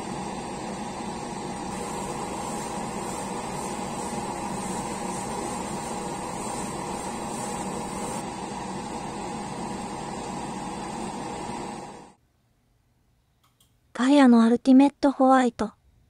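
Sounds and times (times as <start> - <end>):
airbrush hissing: 0.0 - 12.1.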